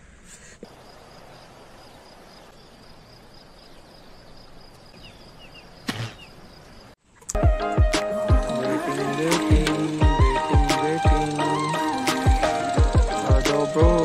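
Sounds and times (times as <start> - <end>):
rain hiss: 0.6 - 4.9
high insect trill: 0.6 - 7.0, 8.1 - 14.0.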